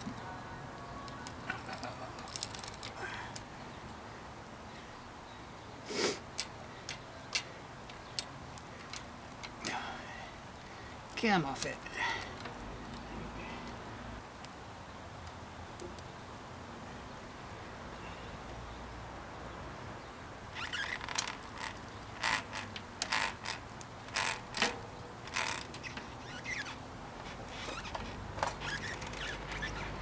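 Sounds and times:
bicycle chain clinking and rattling: 0:01.8 - 0:03.1, 0:20.6 - 0:26.7, 0:27.5 - 0:30.0.

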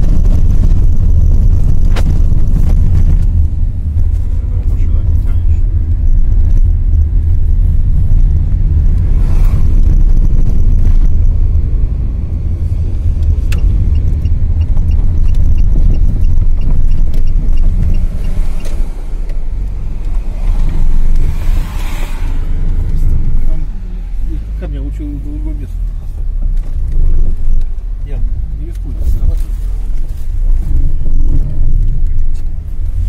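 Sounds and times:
car engine and road rumble: 0:00.0 - 0:33.0
faint regular ticking: 0:12.4 - 0:20.3.

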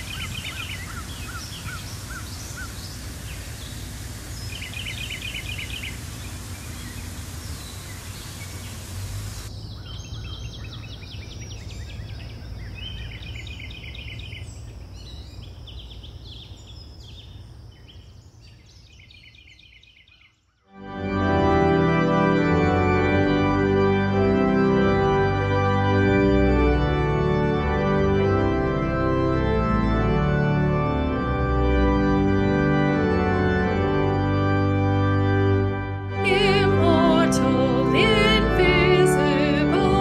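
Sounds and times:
small waterfall splashing: 0:00.0 - 0:09.5
songbirds trilling: 0:00.0 - 0:20.7.

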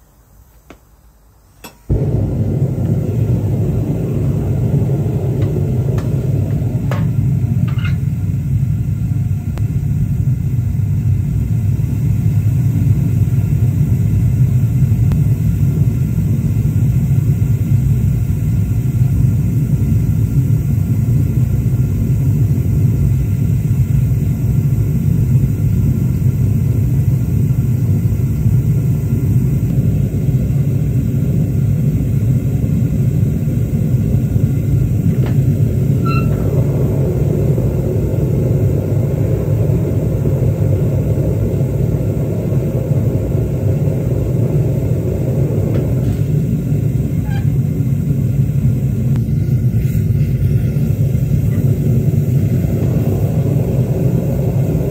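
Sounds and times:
gas burner rumbling: 0:00.0 - 0:54.9
gas burner click: 0:01.6 - 0:03.3.

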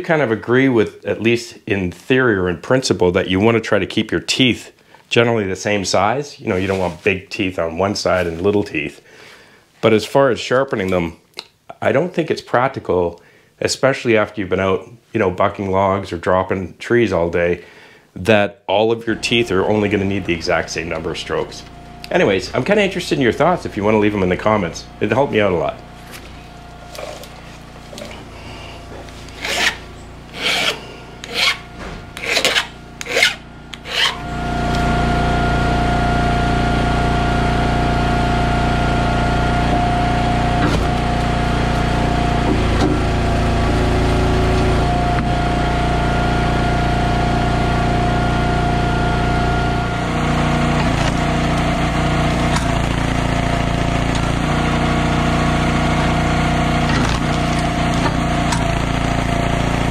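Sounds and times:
engine running: 0:19.0 - 0:59.9
file rasping on chain teeth: 0:29.3 - 0:34.2.

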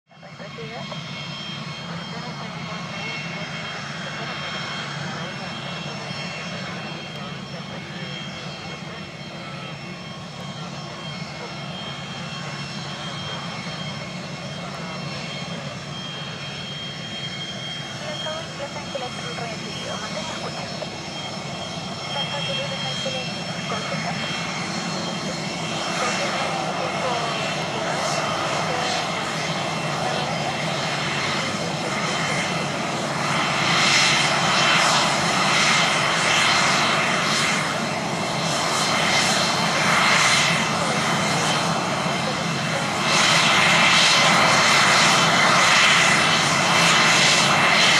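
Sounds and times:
jet engines whining: 0:00.1 - 0:47.9.

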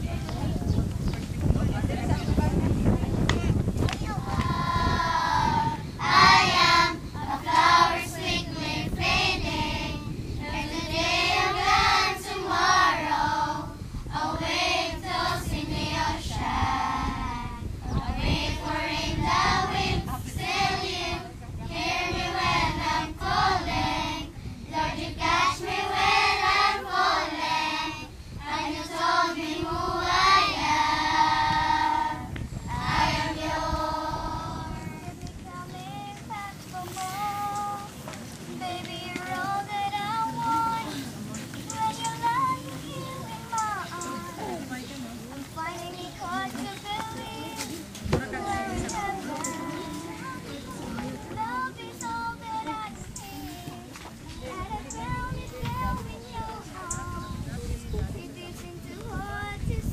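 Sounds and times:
children singing in chorus: 0:04.1 - 0:21.3, 0:21.9 - 0:37.9, 0:45.8 - 0:57.4.

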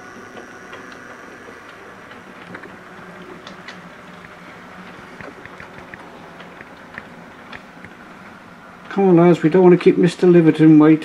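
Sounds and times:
model train motor hum: 0:00.0 - 0:06.6.

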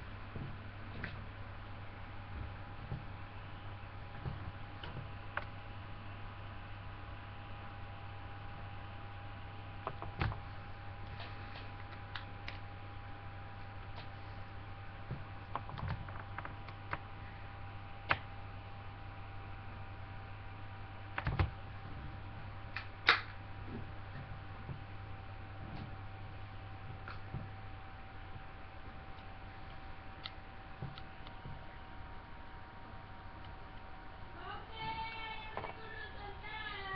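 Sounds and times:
steady electrical hum: 0:00.0 - 0:36.9.

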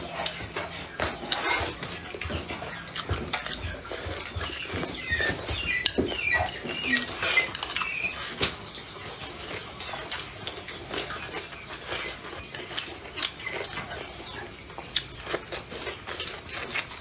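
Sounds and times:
chewing: 0:00.0 - 0:17.0
high squeaky chirps: 0:03.6 - 0:08.4.

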